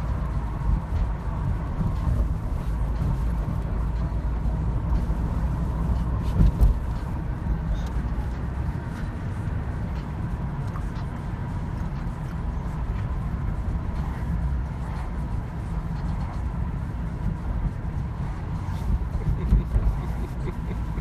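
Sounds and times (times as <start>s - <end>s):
car cabin road rumble: 0.0s - 21.0s.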